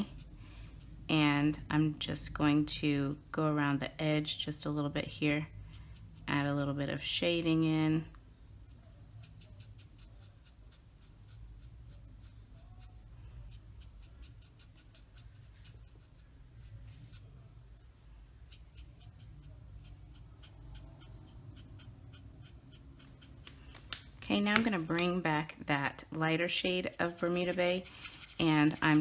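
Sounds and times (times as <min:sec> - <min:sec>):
marker scratching on cardstock: 0:08.7 - 0:17.5, 0:18.4 - 0:23.8, 0:26.6 - 0:29.0.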